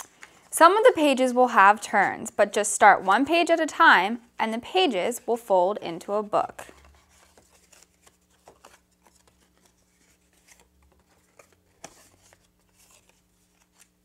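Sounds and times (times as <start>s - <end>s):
cardstock pages rustling: 6.6s - 14.0s.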